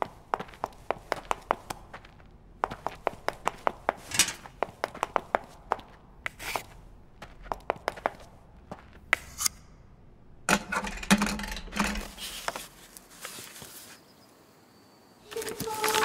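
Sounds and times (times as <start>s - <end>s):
book pages turning: 12.2s - 14.0s, 15.3s - 16.0s.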